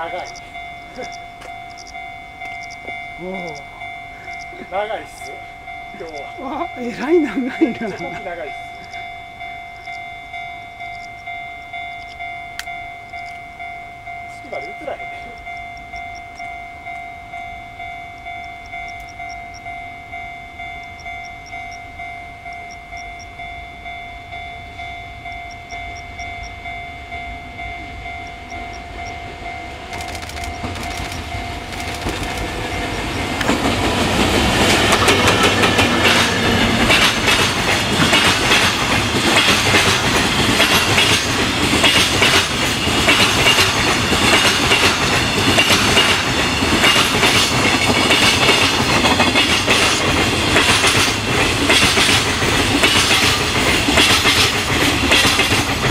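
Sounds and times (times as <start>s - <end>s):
level crossing bell ringing: 0.0s - 31.7s
train wheels clattering over rail joints: 29.9s - 55.9s.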